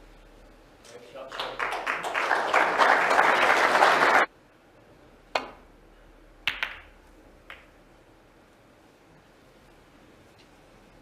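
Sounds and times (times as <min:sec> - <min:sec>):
applause: 0:01.2 - 0:04.3
snooker balls clicking: 0:06.5 - 0:07.8.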